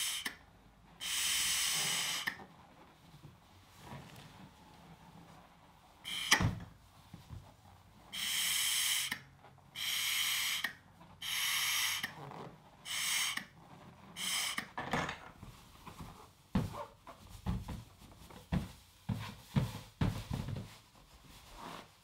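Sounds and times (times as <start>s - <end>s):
air puffs blowing up balloon: 0.0s - 0.4s, 1.0s - 2.4s, 6.0s - 6.6s, 8.1s - 14.8s.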